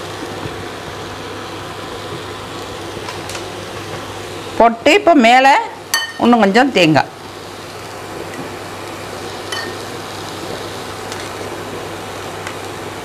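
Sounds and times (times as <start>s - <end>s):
water boiling in a pot: 0.0s - 13.0s
spoon clinking on steel tube: 9.5s - 9.8s.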